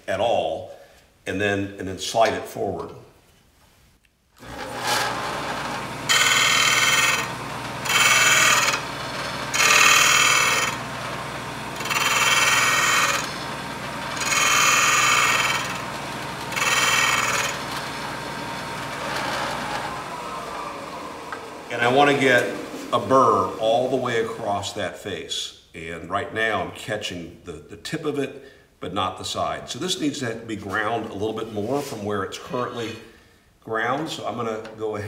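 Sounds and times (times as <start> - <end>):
motor running steadily: 4.4 - 22.9
metal grinding on abrasive disc: 4.4 - 24.4.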